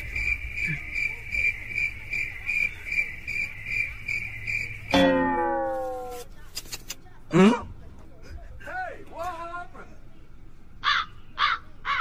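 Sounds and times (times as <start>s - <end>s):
cricket chirping: 0.0s - 5.9s.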